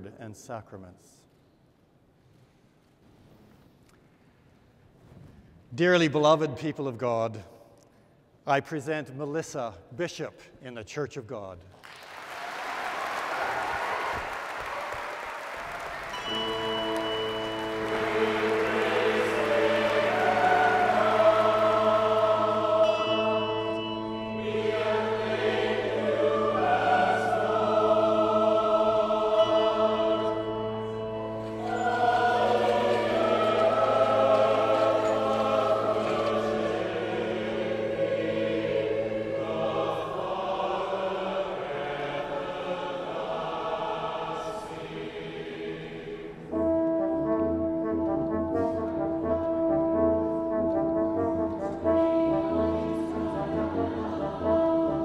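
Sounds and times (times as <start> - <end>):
choir singing: 13.6 - 48.0, 48.6 - 55.0
brass playing: 15.9 - 40.5, 46.5 - 55.0.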